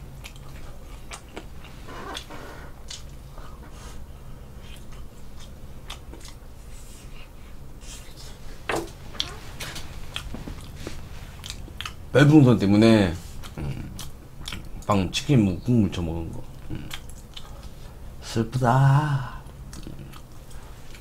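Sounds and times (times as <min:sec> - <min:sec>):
person chewing fried chicken: 0:00.0 - 0:12.1, 0:13.2 - 0:15.0, 0:16.4 - 0:18.1, 0:19.4 - 0:21.0.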